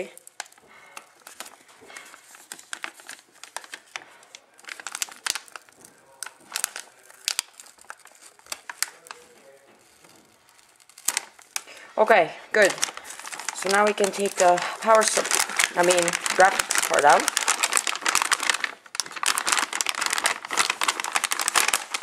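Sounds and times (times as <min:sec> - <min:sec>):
plastic bag crinkling: 0:00.0 - 0:22.0
sticker peeling: 0:04.6 - 0:11.7.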